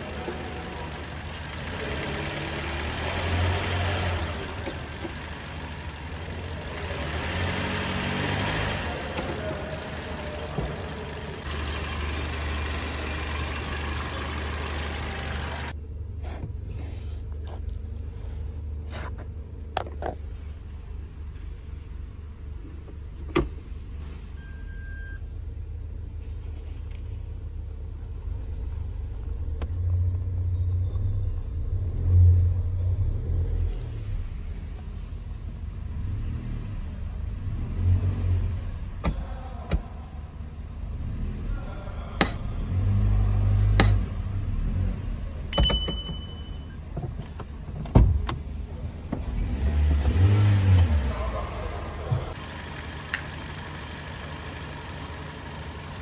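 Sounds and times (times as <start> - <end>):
car engine rumble: 0.0 - 24.5, 25.3 - 56.0
short beeps: 24.4 - 25.3, 45.6 - 46.8
gear selector clicks: 43.8 - 44.0.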